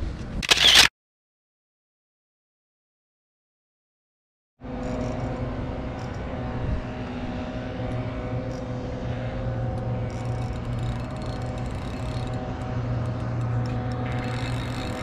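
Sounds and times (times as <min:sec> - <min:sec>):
engine hum: 0:04.6 - 0:15.0.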